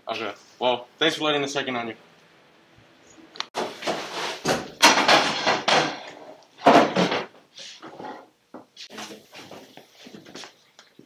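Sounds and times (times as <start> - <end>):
objects clattering and knocking: 3.6 - 10.5.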